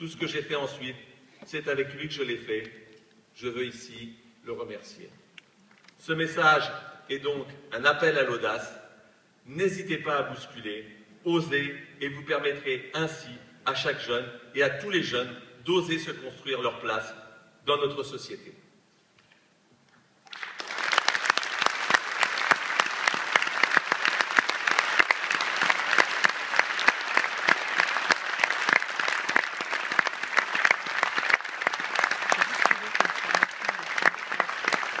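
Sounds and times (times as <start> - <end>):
audience applauding: 20.3 - 35.0.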